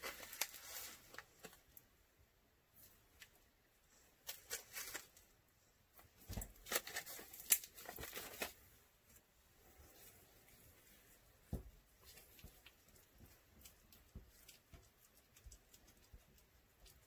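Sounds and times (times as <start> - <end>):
plastic bag crinkling: 0.0 - 1.6, 6.3 - 8.6.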